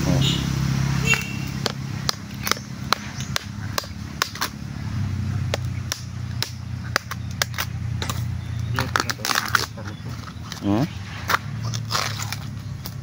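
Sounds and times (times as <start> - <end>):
machete chopping bamboo: 1.1 - 4.7, 5.3 - 13.0.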